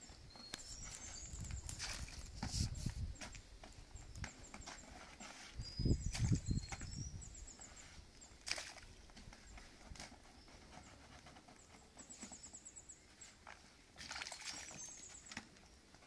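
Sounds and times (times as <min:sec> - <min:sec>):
scooping and splashing into water: 0:14.0 - 0:15.1.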